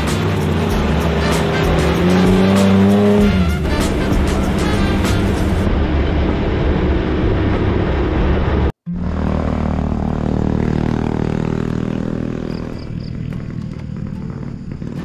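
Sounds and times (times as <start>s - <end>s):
vehicle rumbling on paved road: 0.0s - 15.0s.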